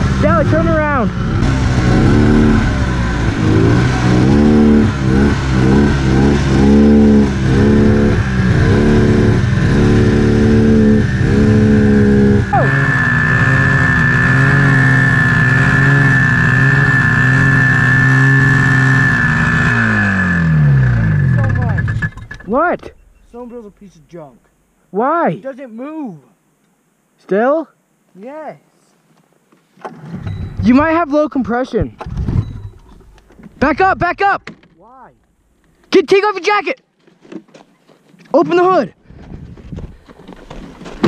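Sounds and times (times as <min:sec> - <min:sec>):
snowmobile engine revving: 0:00.0 - 0:22.2
high steady whine: 0:00.0 - 0:28.9.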